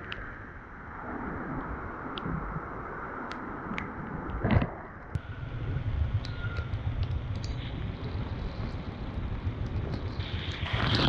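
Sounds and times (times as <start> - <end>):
wind buffeting microphone: 0.0 - 11.0
motorcycle engine running: 5.2 - 11.0
scattered clicks: 6.2 - 11.0.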